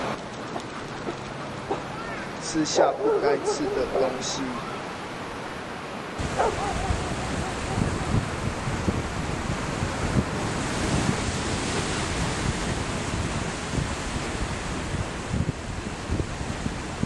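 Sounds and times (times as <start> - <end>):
sea waves washing: 0.0 - 17.0
wind buffeting microphone: 6.2 - 17.0.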